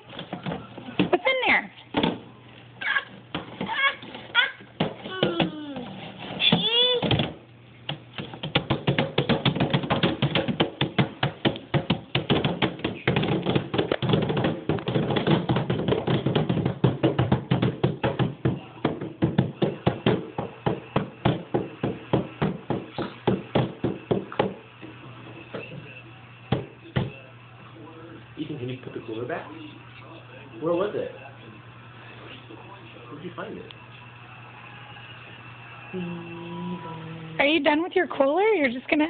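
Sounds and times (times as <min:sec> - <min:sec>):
hands slapping plastic lid: 0:07.2 - 0:20.3.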